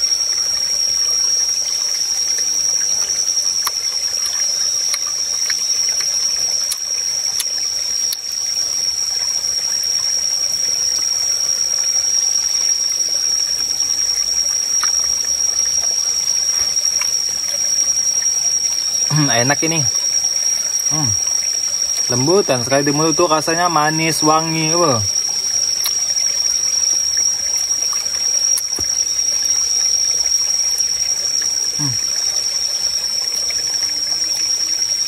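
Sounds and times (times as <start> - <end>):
stream trickling: 0.0 - 35.0
high-pitched whine: 11.1 - 35.0.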